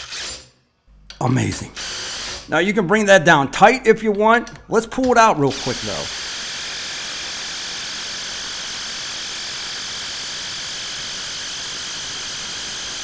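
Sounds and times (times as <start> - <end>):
impact driver whirring: 0.0 - 0.5, 1.7 - 2.5, 5.5 - 13.0.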